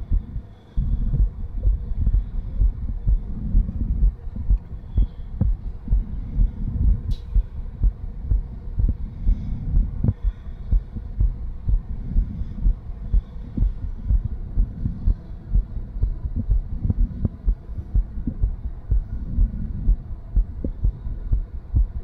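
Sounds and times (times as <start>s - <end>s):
heartbeat through stethoscope: 0.0s - 22.0s
whooshing heart murmur: 0.0s - 22.0s.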